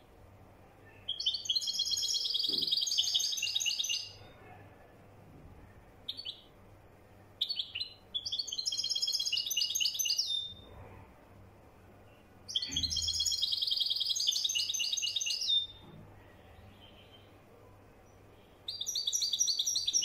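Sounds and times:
high twittering birdsong: 0.8 - 4.3, 6.0 - 6.6, 7.4 - 10.7, 12.0 - 17.4, 18.0 - 20.0.

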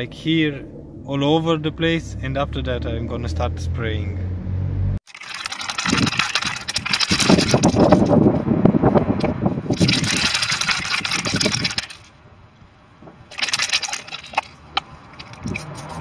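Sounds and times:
spray can ball rattling: 5.1 - 8.2, 9.7 - 12.1, 13.3 - 16.0.

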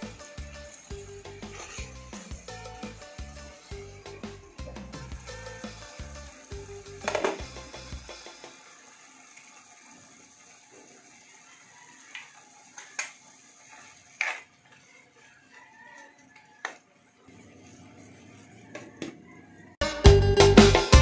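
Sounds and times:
spatula scraping frying pan: 0.0 - 8.6, 9.2 - 16.6.

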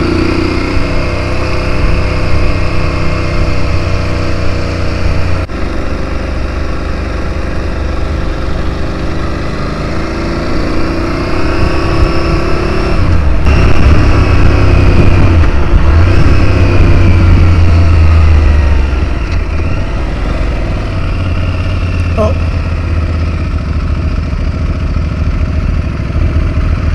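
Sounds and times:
motorcycle engine accelerating: 0.0 - 26.9
wind buffeting on microphone: 11.4 - 20.0.

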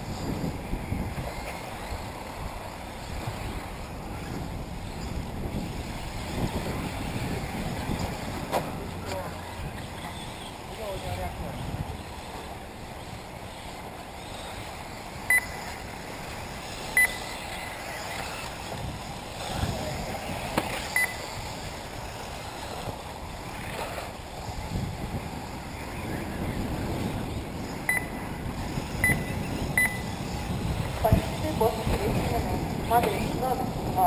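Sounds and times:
wind rumble on microphone: 0.0 - 34.0
short high electronic beeps: 15.3 - 15.6, 17.0 - 17.4, 21.0 - 21.2, 27.9 - 28.1, 29.0 - 30.1.

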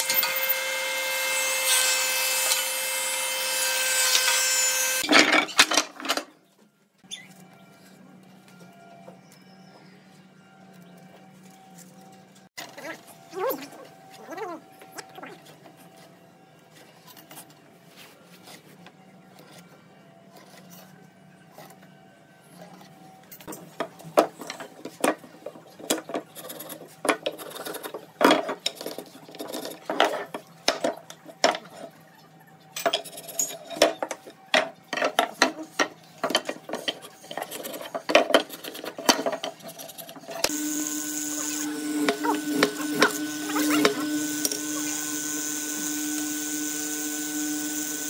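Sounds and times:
electric motor humming: 40.5 - 48.0.

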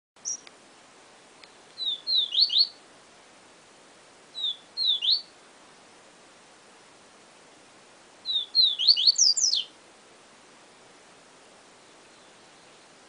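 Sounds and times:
bird singing whistled notes: 0.2 - 0.4, 1.8 - 2.8, 4.3 - 5.3, 8.2 - 9.7, 11.8 - 13.0
faint steady hiss: 0.2 - 13.0.

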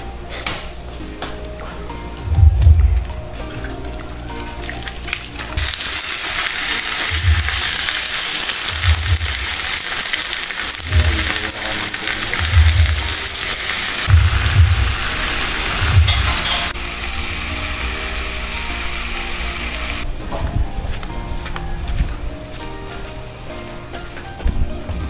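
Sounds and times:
loud steady hissing: 5.6 - 20.0.

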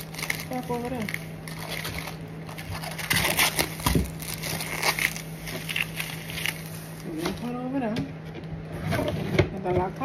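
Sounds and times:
plastic packaging crinkling: 0.0 - 7.6
steady low hum: 0.0 - 10.0.

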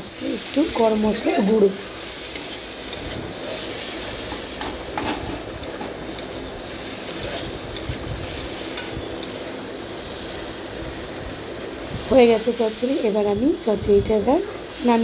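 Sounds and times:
steady sizzle: 0.0 - 15.0
metal spatula scraping a wok: 2.1 - 9.2
spatula clicking on pan: 4.6 - 6.4.

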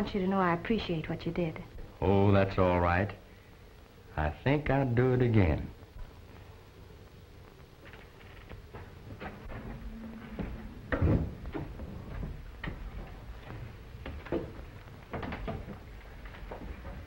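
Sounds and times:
footsteps in a room: 7.4 - 17.0
heavy thump: 9.2 - 12.4.

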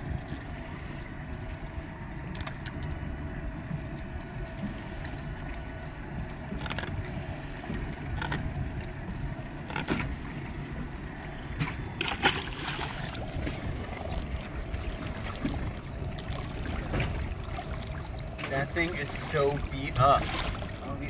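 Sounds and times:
water wash: 0.0 - 21.0
wind: 0.0 - 21.0
fish splashing in water: 11.9 - 15.6.

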